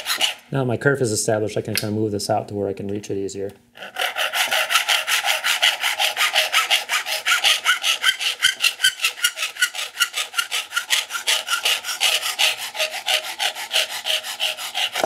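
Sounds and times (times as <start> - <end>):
hacksaw cutting metal tube: 0.0 - 0.5, 3.8 - 15.0.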